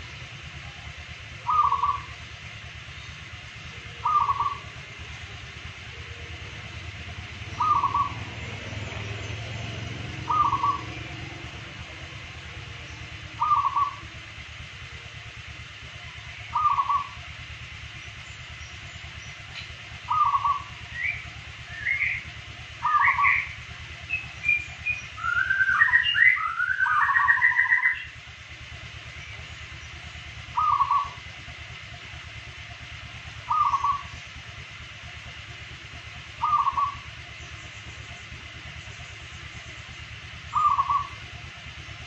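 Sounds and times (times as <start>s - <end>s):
higher bird chirps: 0.0s - 42.0s
low steady hum: 0.0s - 42.0s
dove cooing: 0.6s - 2.6s, 3.8s - 14.3s, 16.4s - 17.4s, 19.6s - 21.2s, 21.8s - 28.0s, 30.4s - 31.3s, 33.4s - 34.9s, 36.2s - 37.4s, 40.2s - 41.4s.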